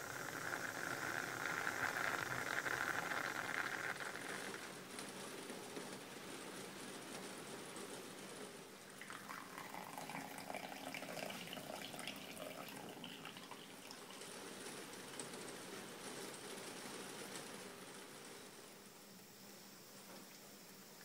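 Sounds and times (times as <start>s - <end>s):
coffee trickling into cup: 0.0s - 4.8s, 8.9s - 14.8s.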